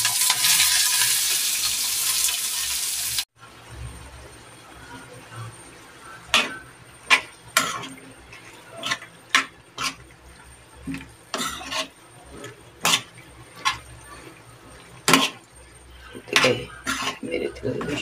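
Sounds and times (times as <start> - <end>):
spatula scraping frying pan: 6.0 - 18.0.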